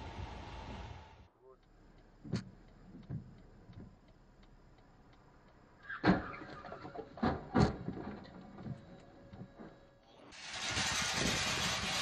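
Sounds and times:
faint regular ticking: 0:01.4 - 0:05.9.

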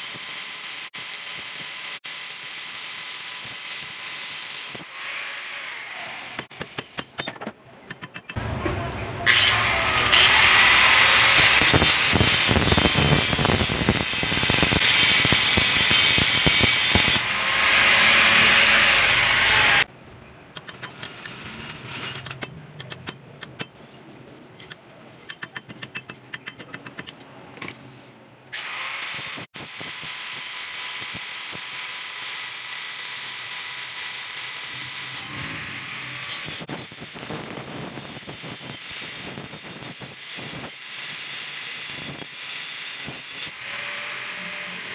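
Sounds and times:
angle grinder cutting metal: 0:00.0 - 0:07.0, 0:08.4 - 0:19.9, 0:28.6 - 0:44.9.

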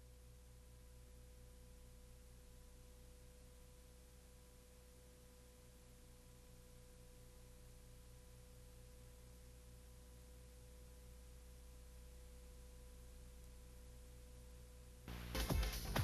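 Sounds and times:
faint hum and hiss: 0:00.0 - 0:16.0.

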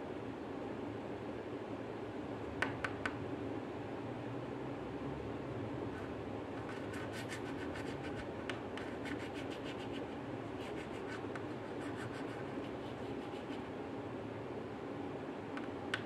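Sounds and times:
steady background hiss: 0:00.0 - 0:16.0
dry scratching strokes: 0:06.0 - 0:13.7.

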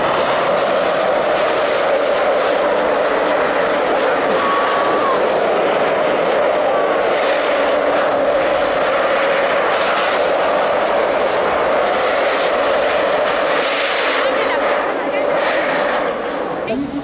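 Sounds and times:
racing cars droning: 0:00.0 - 0:13.5
wind and snow noise: 0:00.0 - 0:17.0.

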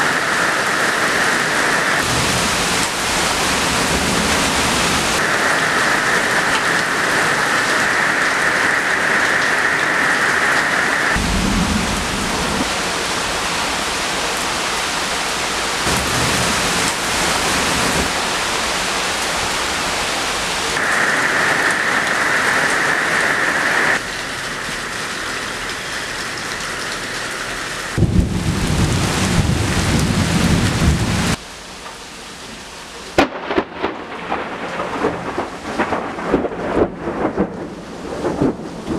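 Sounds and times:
rain pouring on cars: 0:00.0 - 0:38.9
deep thunder rumble: 0:02.0 - 0:05.2, 0:11.1 - 0:13.1, 0:28.0 - 0:31.4, 0:33.2 - 0:38.9.

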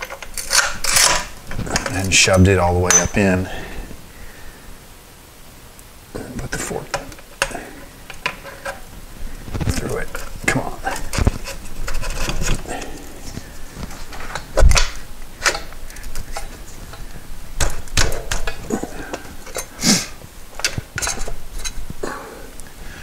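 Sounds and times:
metallic knocks and clinks: 0:02.9 - 0:03.2
metal tube clunking and scraping: 0:09.5 - 0:19.8, 0:20.5 - 0:21.9.

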